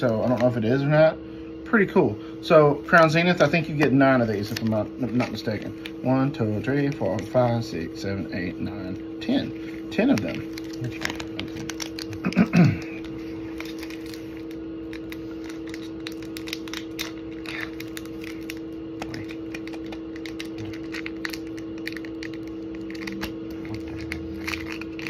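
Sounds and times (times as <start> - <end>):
foil wrappers crinkling: 0.0 - 0.8, 2.9 - 25.0
steady low hum: 0.0 - 25.0.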